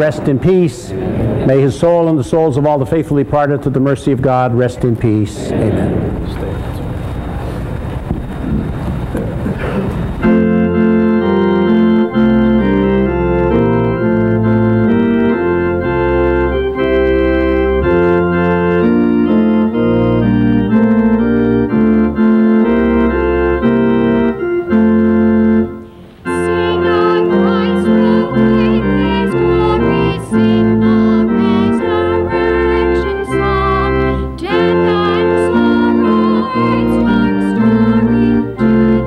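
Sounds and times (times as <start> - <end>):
church organ chords: 9.6 - 39.0
voices singing: 26.2 - 39.0.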